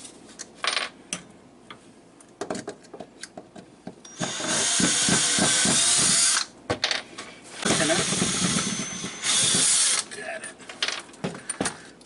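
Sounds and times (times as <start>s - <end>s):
cordless drill running: 4.1s - 6.5s, 7.6s - 10.0s.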